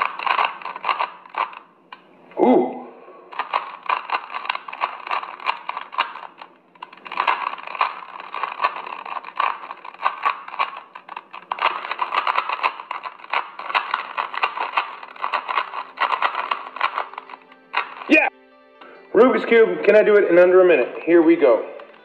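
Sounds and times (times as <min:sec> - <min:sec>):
puzzle cube clicking: 0:00.0 - 0:02.1, 0:03.3 - 0:18.3.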